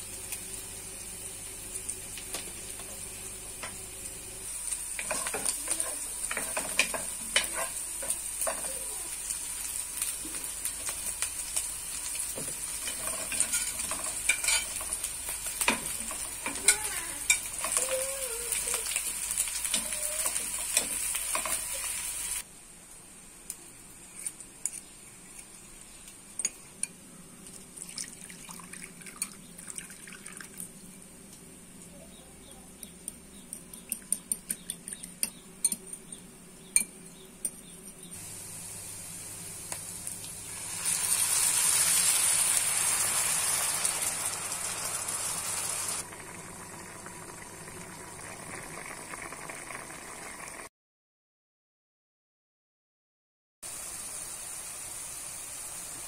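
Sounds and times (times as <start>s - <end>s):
food sizzling in a pan: 0.0s - 22.5s, 38.1s - 50.7s, 53.6s - 56.0s
utensils clinking on dishes: 12.8s - 15.0s.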